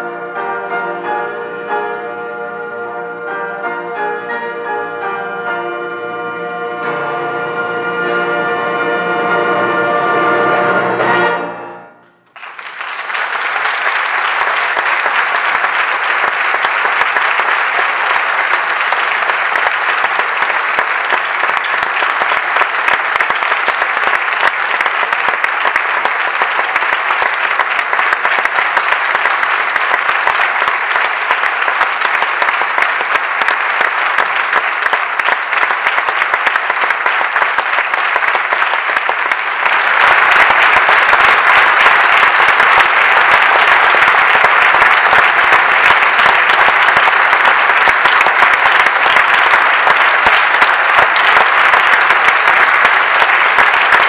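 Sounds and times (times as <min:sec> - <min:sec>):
audience applause: 0:12.2 - 0:54.0.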